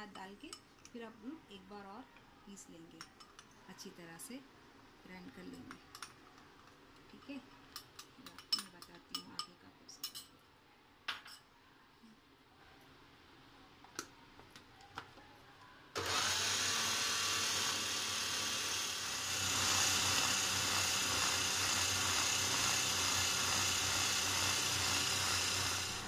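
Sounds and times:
electric chopper motor grinding: 16.0s - 26.0s.

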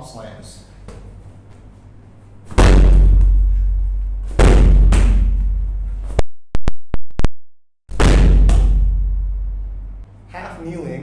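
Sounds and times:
medicine ball slamming on rubber floor: 2.5s - 5.8s, 7.9s - 9.6s.

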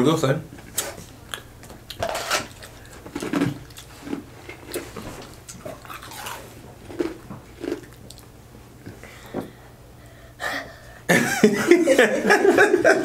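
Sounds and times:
crunching taco shells: 1.3s - 8.3s.

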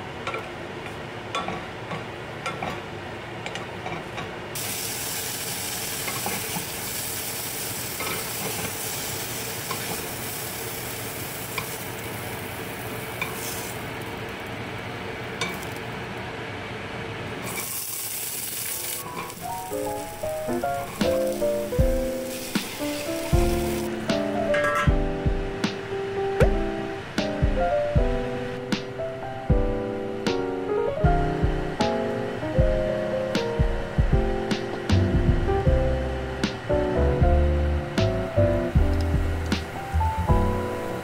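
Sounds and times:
mushrooms sizzling in oil: 4.6s - 14.4s, 17.4s - 24.0s.

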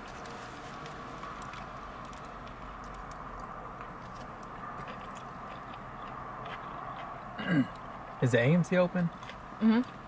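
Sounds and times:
background hum: 0.0s - 10.0s
person chewing: 0.1s - 8.2s, 9.1s - 10.0s.

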